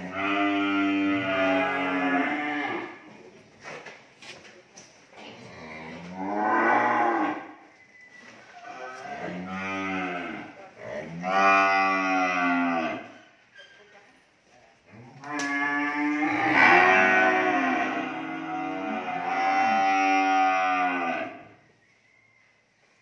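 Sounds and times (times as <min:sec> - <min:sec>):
cattle mooing: 0:00.0 - 0:02.9, 0:08.8 - 0:13.1, 0:15.2 - 0:21.4.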